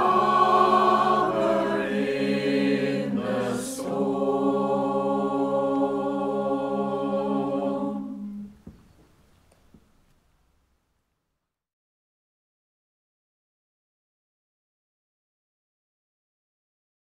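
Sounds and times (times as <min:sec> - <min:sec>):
mixed choir singing: 0:00.0 - 0:08.6.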